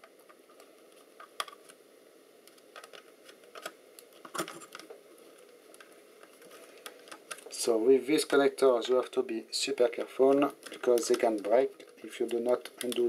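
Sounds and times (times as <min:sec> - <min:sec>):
metal parts clicking and tapping: 0:10.3 - 0:13.0.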